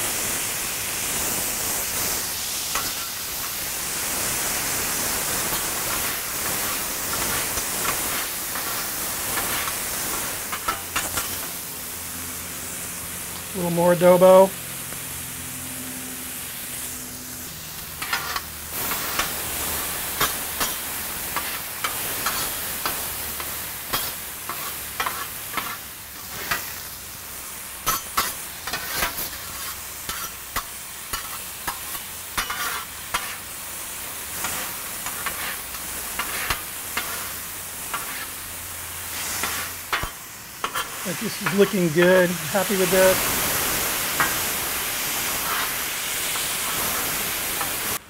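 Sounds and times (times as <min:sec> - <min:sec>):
meat and onions sizzling on griddle: 0:00.0 - 0:48.0
metal spatulas scraping steel: 0:18.0 - 0:18.5, 0:32.4 - 0:33.4.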